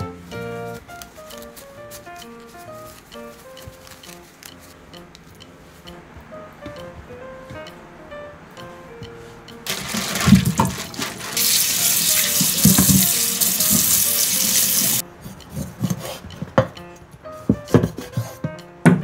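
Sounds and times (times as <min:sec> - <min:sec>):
tap running into metal sink: 0:09.7 - 0:15.0.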